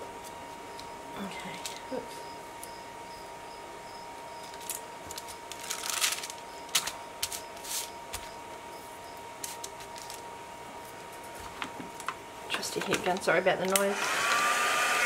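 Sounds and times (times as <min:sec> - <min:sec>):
faint high hum: 0:00.0 - 0:14.1
paper rustling and crinkling: 0:04.4 - 0:08.3, 0:09.4 - 0:10.2.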